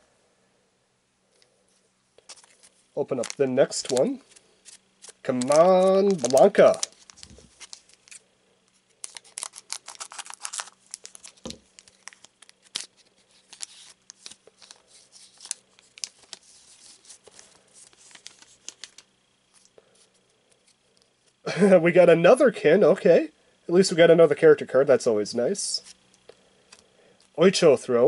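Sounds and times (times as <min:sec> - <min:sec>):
foil wrapper crinkling: 0:02.2 - 0:08.2, 0:08.9 - 0:19.8.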